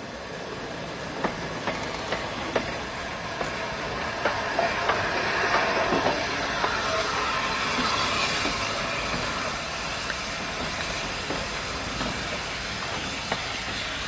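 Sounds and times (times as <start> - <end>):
steam locomotive rolling past: 0.0 - 14.0
wheels clicking over rail joints: 1.2 - 6.8.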